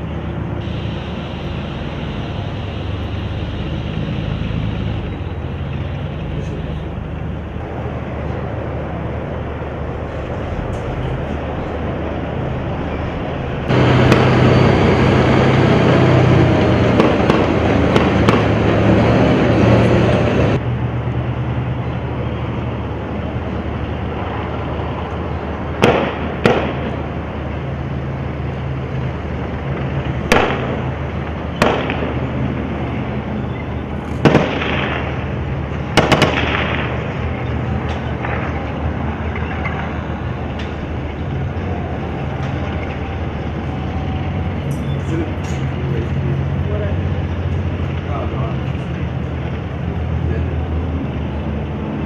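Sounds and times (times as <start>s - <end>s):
vehicle engine rumble: 0.0s - 52.0s
gunshots: 25.8s - 27.0s, 30.3s - 30.9s, 31.6s - 32.4s, 34.2s - 37.4s.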